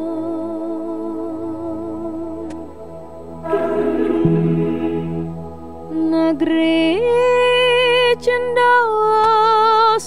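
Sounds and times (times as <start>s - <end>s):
deep bass note: 3.4s - 5.8s
choir singing held chord: 3.4s - 6.2s.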